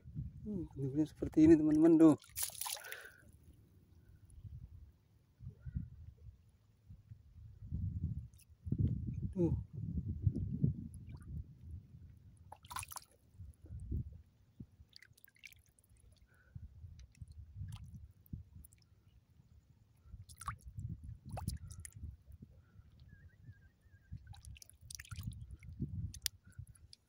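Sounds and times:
shallow water sloshing: 1.1 - 3.6, 12.4 - 13.4, 14.8 - 16.5, 20.2 - 22.0, 24.2 - 27.0
sharp drips: 1.8 - 3.1, 12.5 - 13.1, 24.2 - 25.4.

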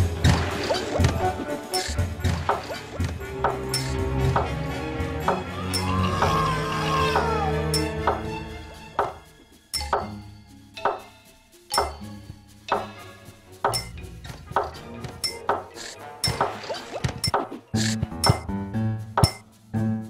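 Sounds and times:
sharp clinking strikes: 3.7 - 4.0, 7.7 - 8.2, 11.7 - 13.0, 15.2 - 18.5, 19.2 - 19.5.

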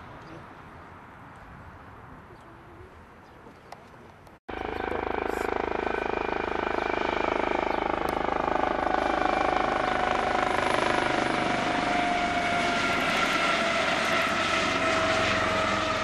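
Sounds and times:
helicopter rotor chop: 4.5 - 16.0
helicopter turbine whine: 4.5 - 16.0.

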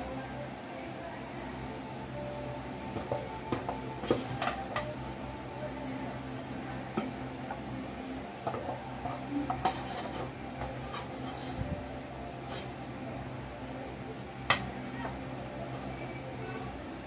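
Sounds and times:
steady low hum: 0.0 - 17.0
metal utensil clinking on pan: 8.4 - 11.6.

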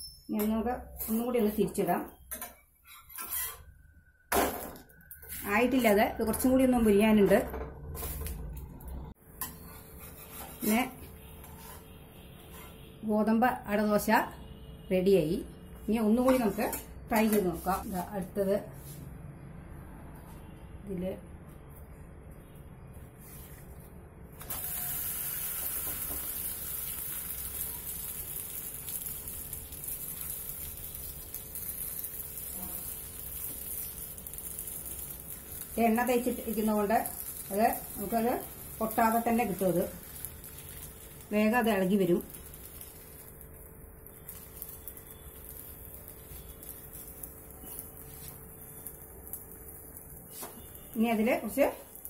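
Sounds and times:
leaf sizzling on hot griddle: 24.4 - 52.0.

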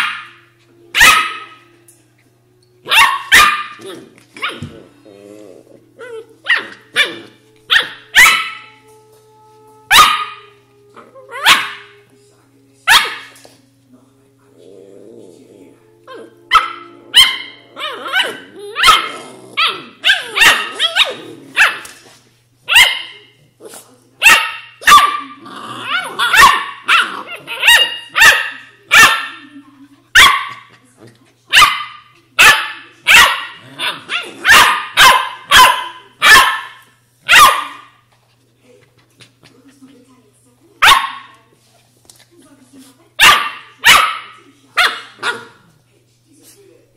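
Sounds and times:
puppies barking: 0.0 - 1.6, 2.8 - 4.7, 6.0 - 8.7, 9.9 - 10.5, 11.3 - 12.0, 12.9 - 13.4, 16.5 - 22.0, 22.7 - 23.2, 24.2 - 29.5, 30.2 - 30.7, 31.5 - 38.0, 40.8 - 41.3, 43.2 - 45.6.

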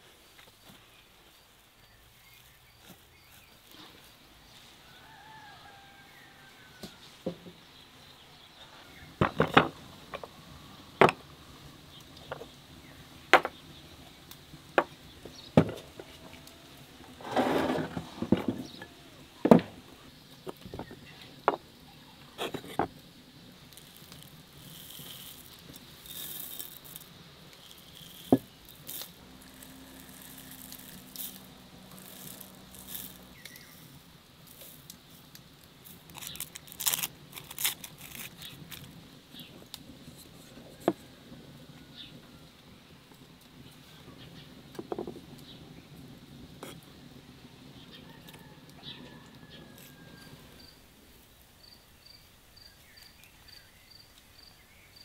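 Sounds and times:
seeds crackling: 8.2 - 51.5
salt pouring into mortar: 23.7 - 34.9.

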